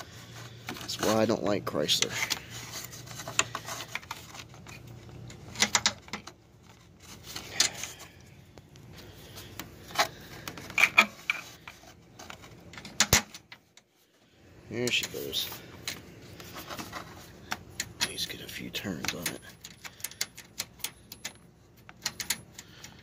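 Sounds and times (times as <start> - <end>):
metallic clinks of bolt and tools: 17.8 - 23.0.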